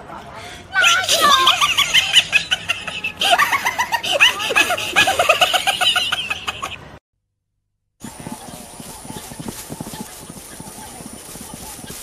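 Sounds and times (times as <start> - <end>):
shrill cackling laughter: 1.1 - 7.0.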